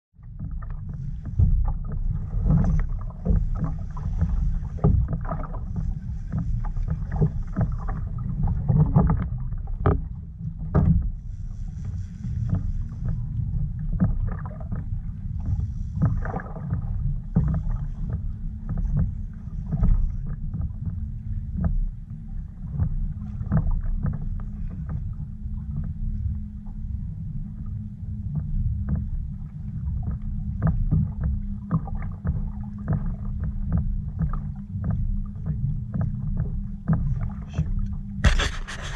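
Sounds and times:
water lapping against kayak hull: 0.2 - 38.9
wind rumble on microphone: 0.2 - 38.9
small knocks on hull: 0.3 - 11.2.

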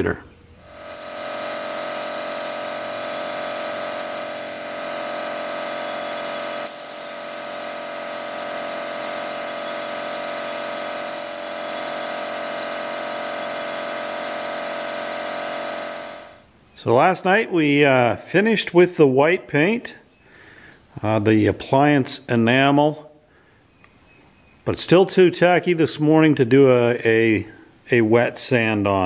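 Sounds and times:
spray gun hissing: 0.6 - 16.4
steady whine: 0.6 - 16.5.

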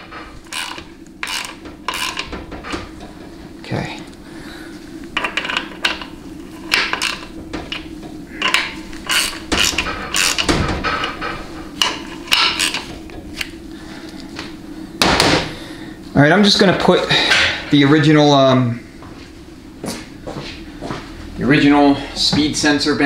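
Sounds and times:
steady low hum: 0.0 - 23.0
hand ratchet clicking: 0.4 - 2.3, 8.4 - 10.5, 11.8 - 12.8.

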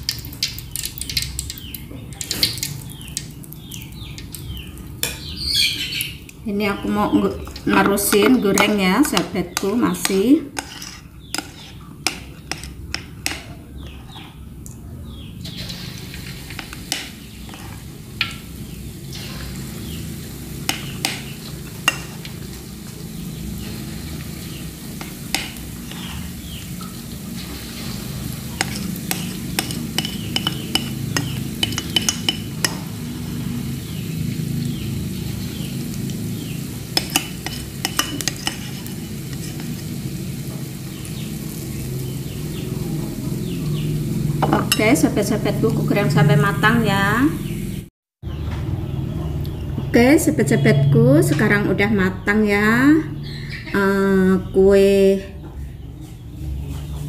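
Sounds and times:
dough sizzling in hot oil: 0.0 - 5.2, 15.5 - 43.3.

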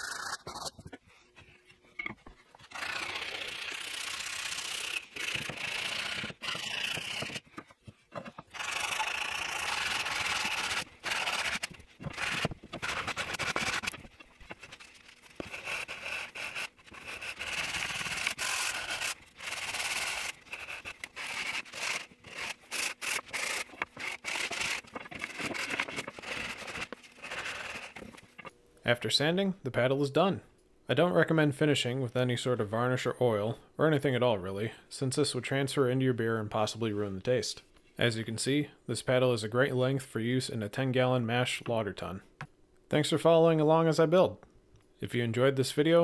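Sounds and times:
sandpaper rubbing wood: 2.6 - 7.5, 8.6 - 28.1.

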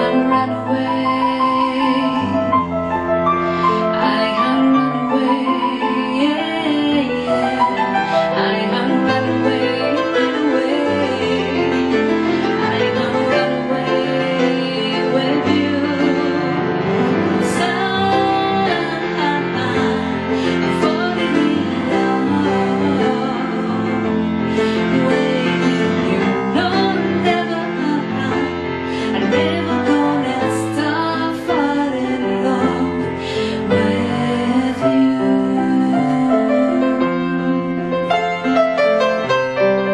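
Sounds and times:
woman singing: 0.0 - 3.0, 3.6 - 38.5
piano accompaniment: 0.0 - 39.9.

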